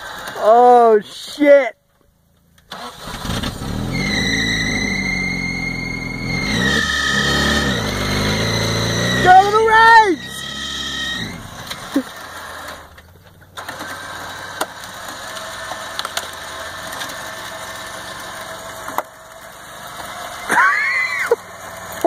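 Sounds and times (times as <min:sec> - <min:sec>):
truck engine running: 0:02.2 - 0:22.0
winch motor whine: 0:13.6 - 0:22.0.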